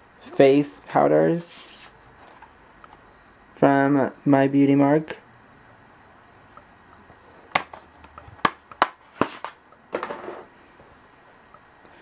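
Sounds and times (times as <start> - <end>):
scraping rustle: 1.4 - 2.4.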